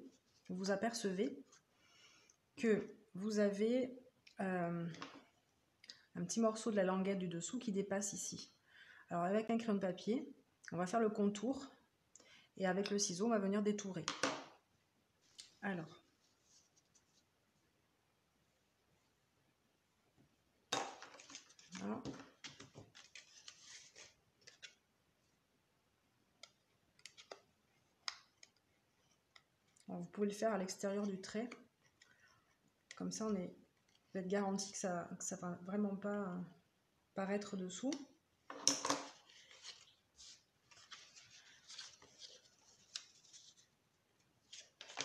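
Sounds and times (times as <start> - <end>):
stiff card rustling and rubbing: 22.4 - 24.8, 39.2 - 43.8.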